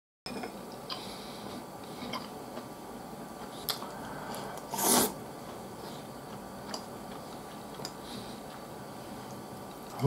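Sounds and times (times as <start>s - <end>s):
person slurping: 3.6s - 5.2s.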